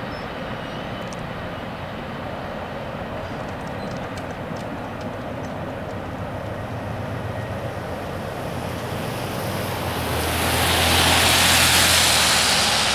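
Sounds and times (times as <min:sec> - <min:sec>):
train cars rumbling past: 0:00.0 - 0:12.9
loud rushing noise: 0:08.4 - 0:12.9.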